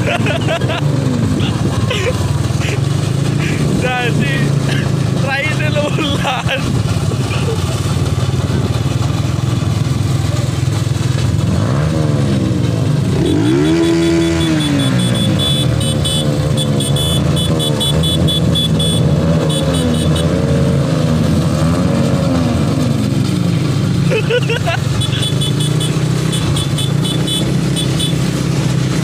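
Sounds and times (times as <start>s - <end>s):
motorcycle engines running: 0.0s - 29.0s
rapid rhythmic ticking: 13.2s - 20.3s, 24.8s - 28.2s.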